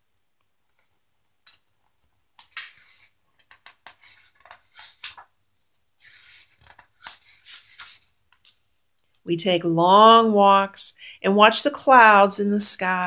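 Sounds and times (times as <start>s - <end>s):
paper rustling: 0.6s - 9.2s.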